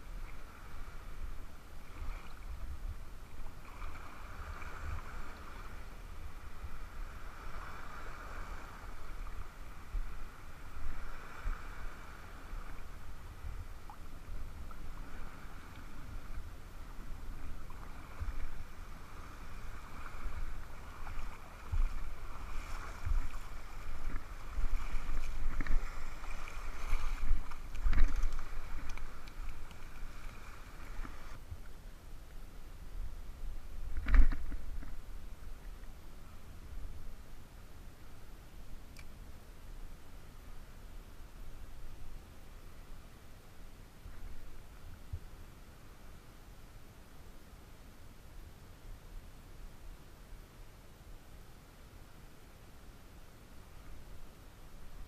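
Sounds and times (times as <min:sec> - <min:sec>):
wind on microphone: 0:00.0 - 0:31.8, 0:32.4 - 0:38.0
water sloshing around legs: 0:19.4 - 0:31.4.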